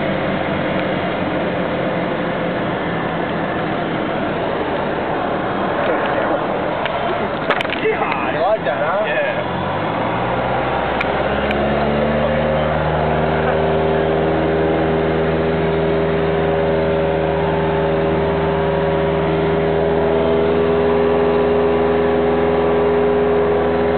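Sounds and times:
light aircraft engine droning: 0:00.0 - 0:23.9.

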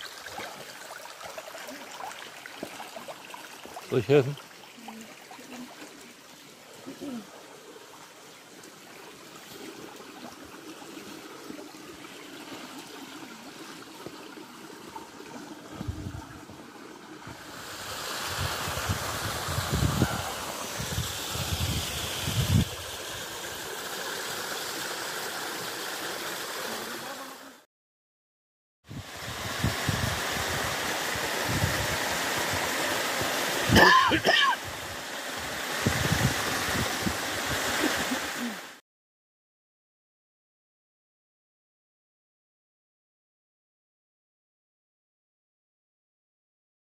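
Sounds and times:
stream trickling over rocks: 0:00.0 - 0:27.5, 0:28.9 - 0:38.8
person coughing: 0:33.7 - 0:34.6.

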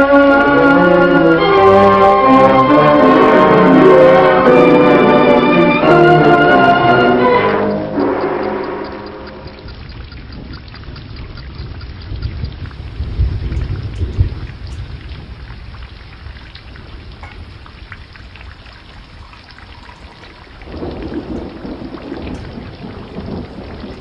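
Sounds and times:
steady rain: 0:00.0 - 0:24.0
thunder rumble: 0:12.5 - 0:24.0.

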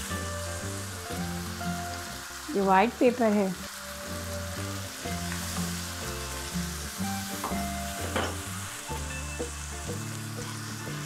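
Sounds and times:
chicken sizzling in oil: 0:00.0 - 0:11.0
low background music: 0:00.0 - 0:11.0.

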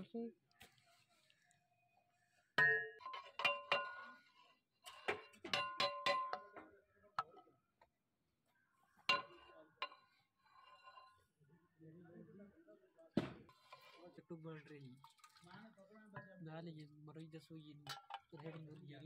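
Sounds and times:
metal ladle clanking against pot: 0:02.6 - 0:07.4, 0:09.0 - 0:11.2, 0:17.8 - 0:18.6.

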